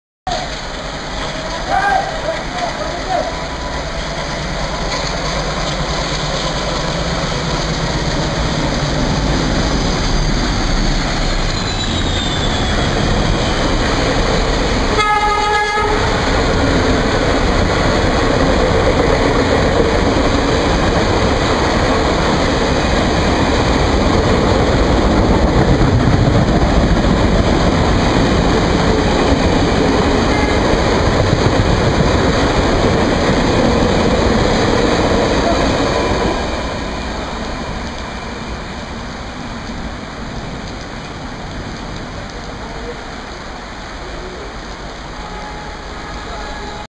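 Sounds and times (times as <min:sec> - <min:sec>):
diesel locomotive passing: 0:00.3 - 0:46.9
heavy rain hissing: 0:00.3 - 0:46.9
train coaches rolling past: 0:00.3 - 0:46.9
train horn blast: 0:14.9 - 0:16.3, 0:30.2 - 0:30.9, 0:45.1 - 0:46.9.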